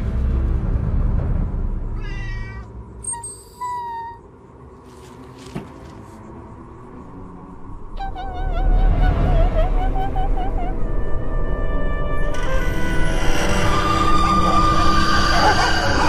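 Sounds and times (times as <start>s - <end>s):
cat meowing: 2.0s - 4.2s.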